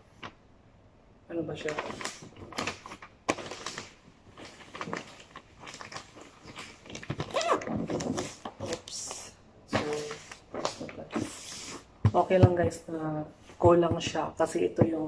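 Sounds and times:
wrapping paper crinkling: 0:01.5 - 0:11.9.

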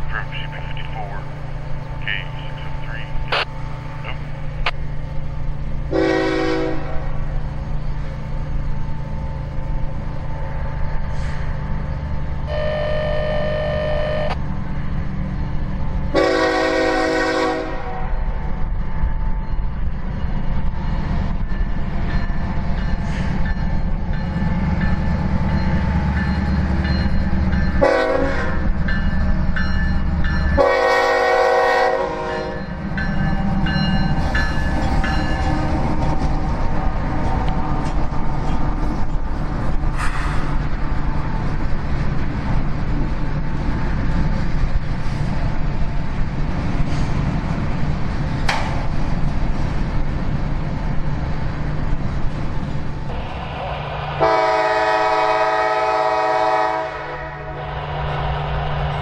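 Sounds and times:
diesel locomotive engines rumbling: 0:00.0 - 0:59.0
train air horn: 0:05.9 - 0:07.1, 0:12.5 - 0:14.4, 0:16.1 - 0:18.0, 0:27.8 - 0:28.6, 0:30.6 - 0:32.6, 0:54.2 - 0:57.7.

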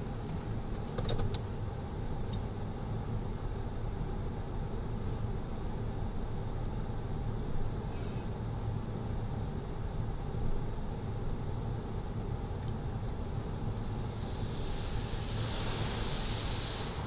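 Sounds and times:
steady low hum: 0:00.0 - 0:17.0
brief hiss: 0:07.9 - 0:08.5, 0:13.7 - 0:17.0.

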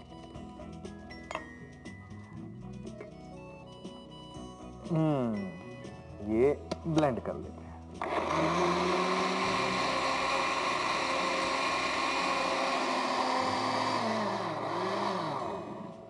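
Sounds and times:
electric blender running: 0:08.0 - 0:16.0.

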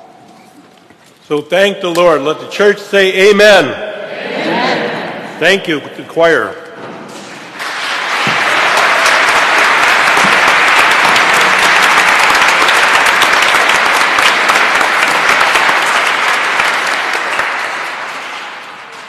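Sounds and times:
crowd applauding: 0:07.5 - 0:19.0.

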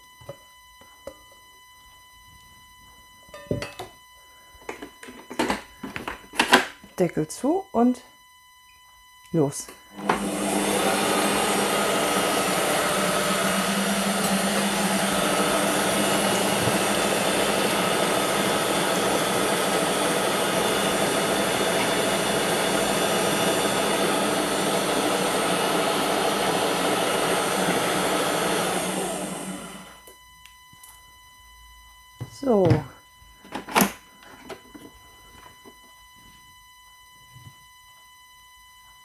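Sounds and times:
kitchen machine blade whirring: 0:09.9 - 0:30.0.

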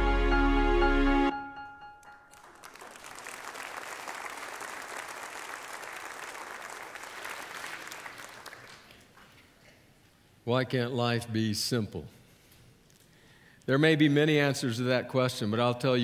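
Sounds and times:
congregation applauding: 0:02.2 - 0:09.5.

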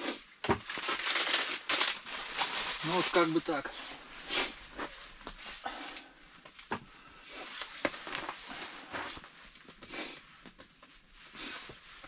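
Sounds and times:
person eating and handling food: 0:00.0 - 0:12.0
rustling packaging: 0:00.4 - 0:05.6.

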